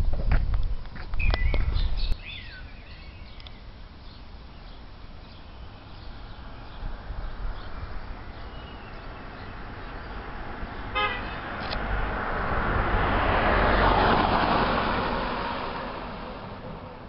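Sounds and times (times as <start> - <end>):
car passing close by: 6.0 - 17.0
car horn toot: 10.9 - 11.4.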